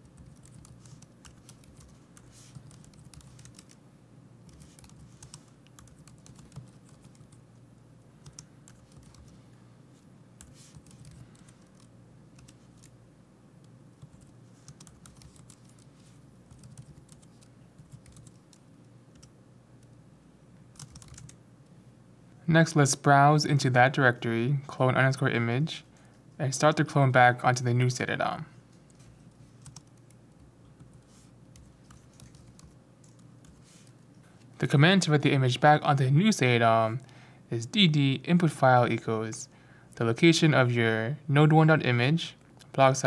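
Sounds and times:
typing on computer keyboard: 0:00.1 - 0:03.8, 0:04.5 - 0:07.4, 0:08.2 - 0:09.3, 0:10.4 - 0:12.9, 0:14.0 - 0:15.9, 0:16.5 - 0:19.3, 0:20.7 - 0:21.4, 0:29.6 - 0:30.9, 0:31.6 - 0:33.6.

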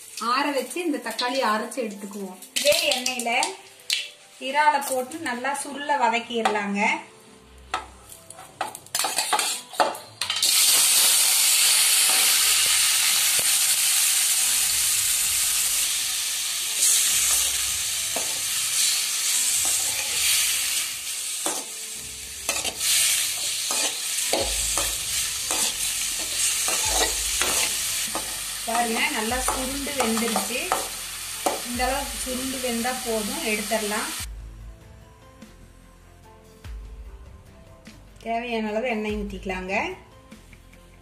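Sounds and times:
prawns sizzling in hot oil: 0:00.0 - 0:05.8, 0:08.9 - 0:34.3.

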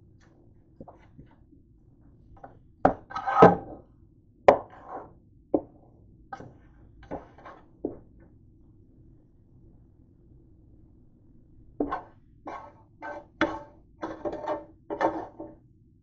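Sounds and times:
spatula scraping frying pan: 0:03.0 - 0:03.7, 0:04.5 - 0:05.1, 0:11.8 - 0:15.6.

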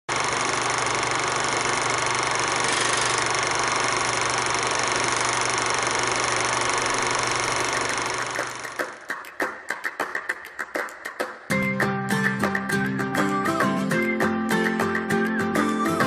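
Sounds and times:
film projector whirring: 0:00.1 - 0:09.2.

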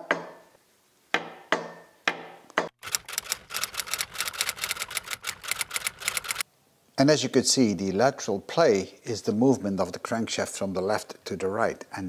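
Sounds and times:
fast typewriter-like clicks: 0:02.8 - 0:06.4.

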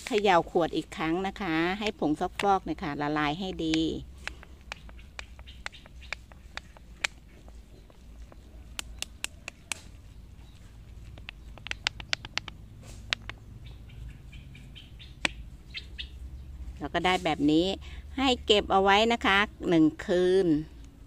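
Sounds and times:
plastic clicks and taps: 0:00.0 - 0:13.5.

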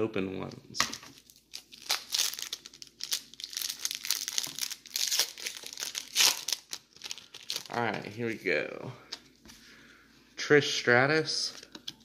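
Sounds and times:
foil wrapper tearing and crinkling: 0:01.1 - 0:07.9.

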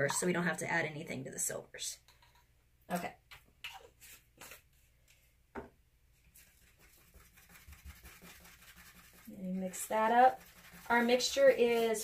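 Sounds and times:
faint taps of paint cups: 0:02.0 - 0:05.8.

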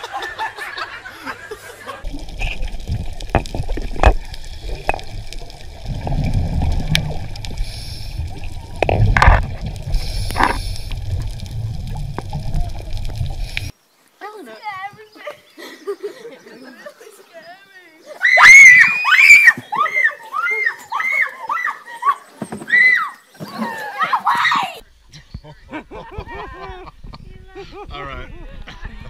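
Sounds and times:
bubbling water surges: 0:02.0 - 0:13.7
muffled underwater rumble: 0:02.0 - 0:13.7.

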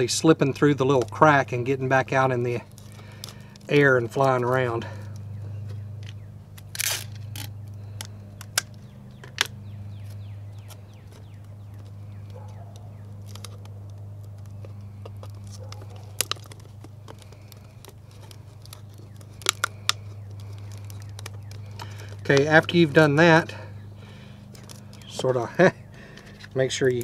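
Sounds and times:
thin plastic clicking and crinkling: 0:00.4 - 0:27.0
tape tearing from dispenser: 0:06.6 - 0:08.8.

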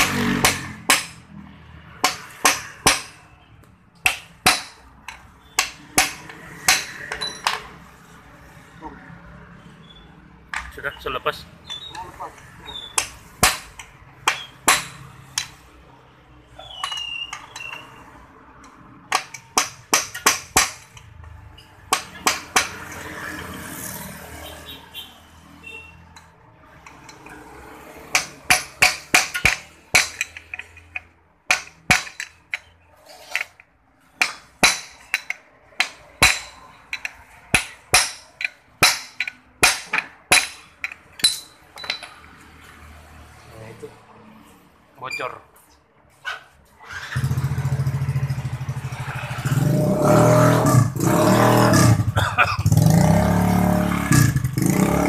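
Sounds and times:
hammer striking metal: 0:00.0 - 0:01.3, 0:02.0 - 0:03.4, 0:04.0 - 0:07.7, 0:19.1 - 0:21.0, 0:28.0 - 0:32.7, 0:34.2 - 0:42.1.

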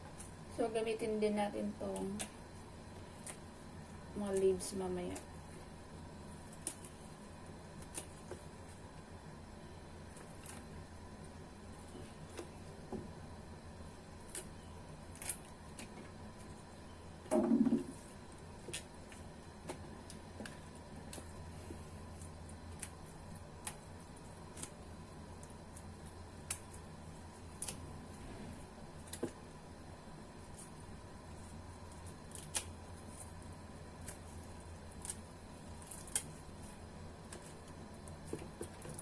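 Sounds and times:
faint steady hum: 0:00.0 - 0:39.0
celery stems snapping: 0:06.5 - 0:07.0, 0:14.2 - 0:15.9, 0:22.2 - 0:24.8, 0:25.8 - 0:26.8, 0:27.5 - 0:27.9, 0:32.0 - 0:33.2, 0:34.0 - 0:36.5.

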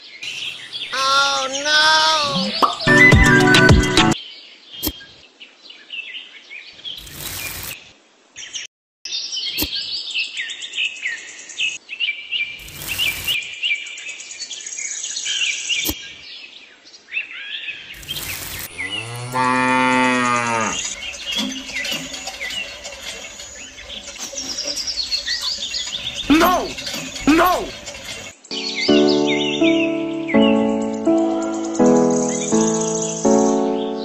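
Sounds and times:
birds chirping: 0:00.0 - 0:04.2, 0:17.8 - 0:34.0
short bursts of noise: 0:07.0 - 0:07.8, 0:12.6 - 0:13.4, 0:18.0 - 0:18.9
cow mooing: 0:18.7 - 0:22.8.

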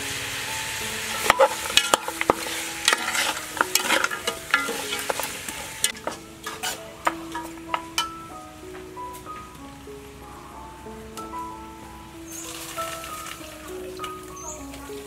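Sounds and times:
meat sizzling: 0:00.0 - 0:15.0
metal ladle scraping a pot: 0:01.0 - 0:08.2
ladle clattering against pot: 0:01.1 - 0:08.2.

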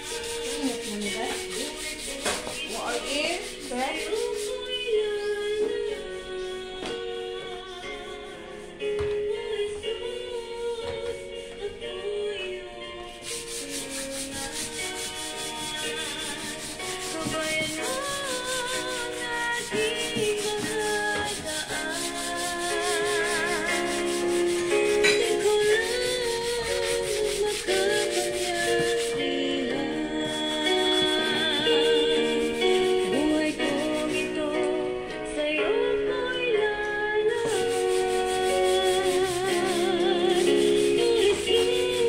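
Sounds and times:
sandpaper rubbing: 0:00.0 - 0:04.6, 0:13.2 - 0:29.2, 0:30.2 - 0:34.2, 0:37.4 - 0:42.0
background music with singing: 0:00.0 - 0:42.0.

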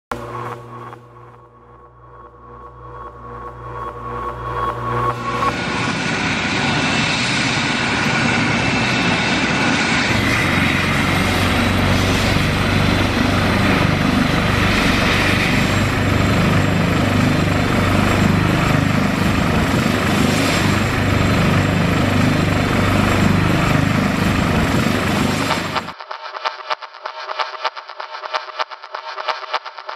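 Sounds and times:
helicopter rotor and engine: 0:03.2 - 0:26.0.

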